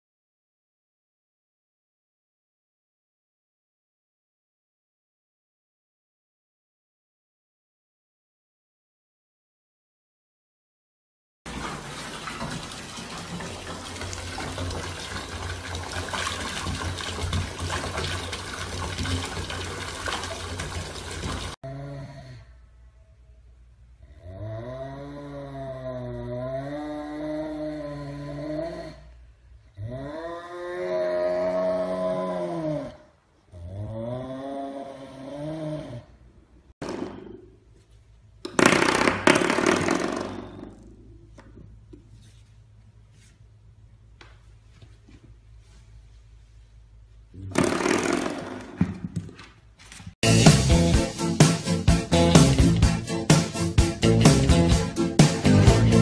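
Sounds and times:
tap water pouring into bathtub: 11.5s - 21.6s.

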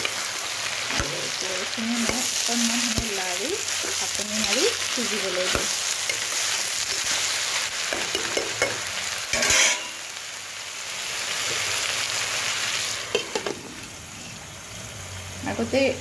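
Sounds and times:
vegetables sizzling in hot oil: 0.0s - 16.0s
spatula stirring in pan: 0.9s - 9.9s.

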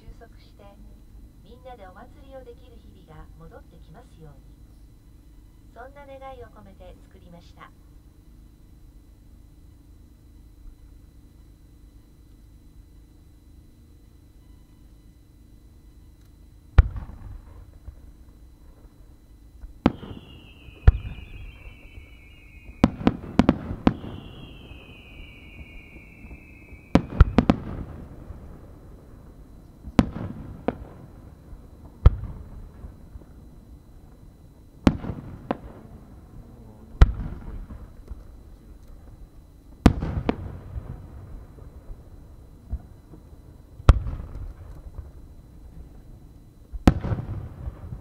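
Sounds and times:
whistling firework shells: 16.0s - 36.4s
fireworks bangs with echo: 16.8s - 18.0s, 19.6s - 33.3s, 34.8s - 36.0s, 37.0s - 37.9s, 39.8s - 42.0s, 43.9s - 45.1s, 46.8s - 48.0s.

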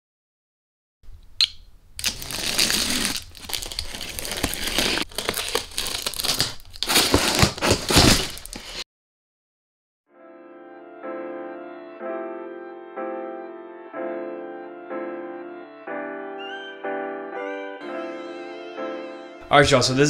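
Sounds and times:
box cutter slicing cardboard: 2.1s - 8.8s
cardboard lid flexing: 2.1s - 8.8s.

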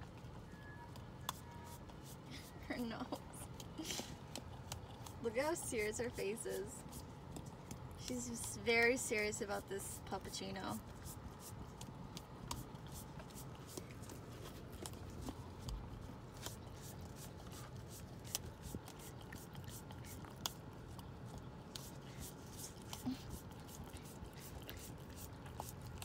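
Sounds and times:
puppy licking wet: 3.0s - 6.2s, 10.8s - 26.0s.

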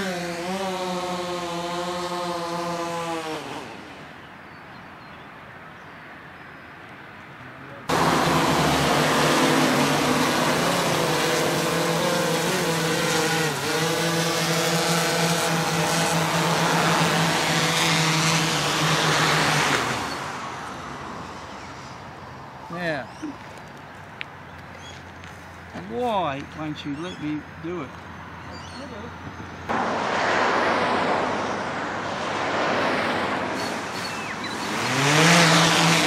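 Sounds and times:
drone propeller buzz: 0.0s - 4.1s, 7.9s - 20.6s, 29.7s - 36.0s
small drone hovering buzz: 0.0s - 4.2s, 7.9s - 22.1s, 29.7s - 36.0s.

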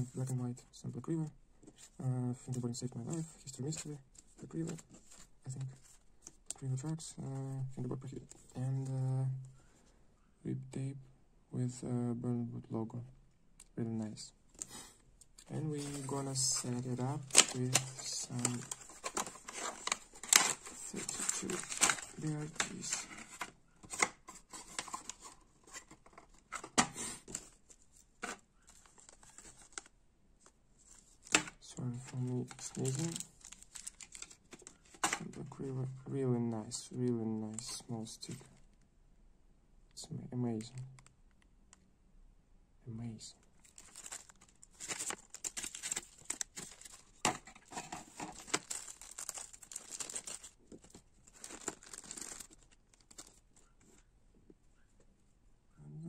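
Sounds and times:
plastic bag crinkling: 15.4s - 26.6s, 32.1s - 35.2s, 43.6s - 53.7s.

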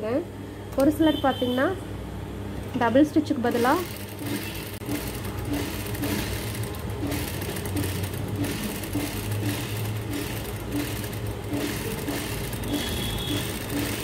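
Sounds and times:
sewing machine stitching fabric: 3.4s - 14.0s.

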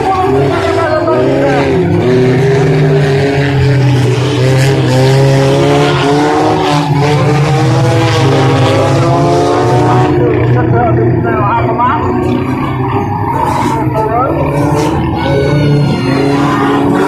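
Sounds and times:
racing car engines revving: 0.0s - 17.0s.

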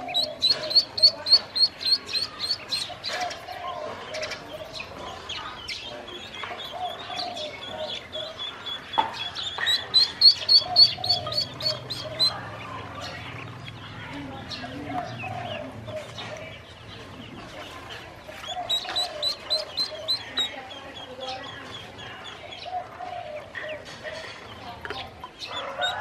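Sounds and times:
ducklings peeping: 0.0s - 26.0s.

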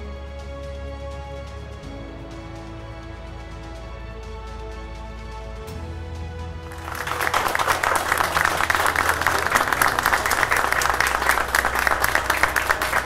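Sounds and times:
soft background music: 0.0s - 13.0s
crowd applauding: 6.7s - 13.0s.

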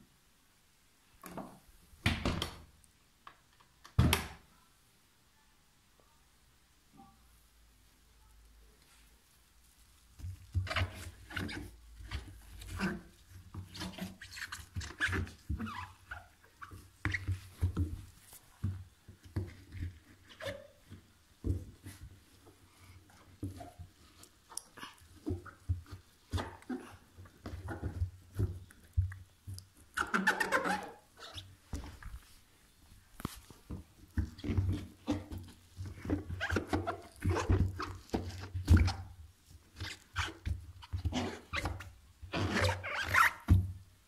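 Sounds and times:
damp laundry rustling: 8.8s - 29.9s, 30.9s - 40.8s.

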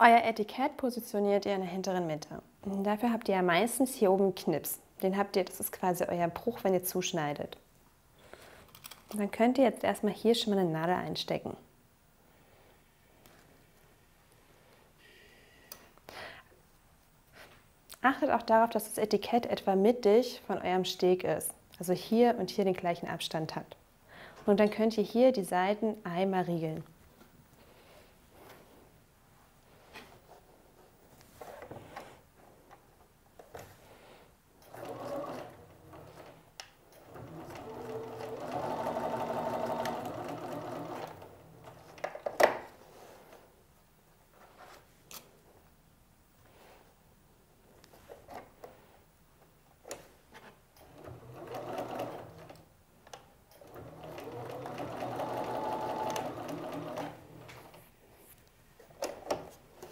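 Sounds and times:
sewing machine stitching: 34.6s - 36.4s, 37.0s - 42.0s, 50.8s - 52.6s, 53.6s - 57.8s.

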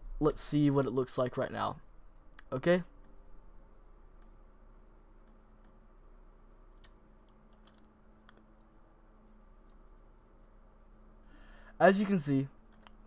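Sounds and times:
faint electrical hum: 0.0s - 13.0s
computer mouse and keyboard clicks: 5.2s - 11.0s, 12.6s - 13.0s.

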